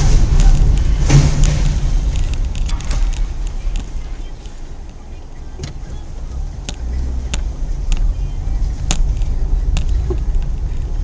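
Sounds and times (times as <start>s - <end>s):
car engine and road noise: 0.0s - 11.0s
sharp clicks and ticks: 0.0s - 11.0s.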